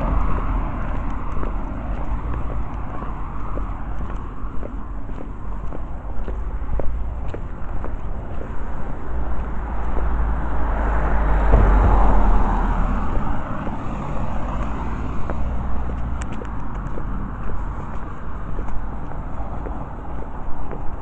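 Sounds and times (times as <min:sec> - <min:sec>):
steady low rumble: 0:00.0 - 0:21.0
car driving past: 0:08.7 - 0:18.5.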